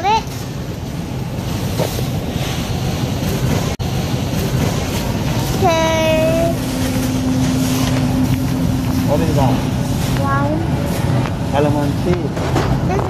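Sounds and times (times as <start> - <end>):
grocery store hum and hiss: 0.0 - 13.0
steady low tone: 5.1 - 11.6.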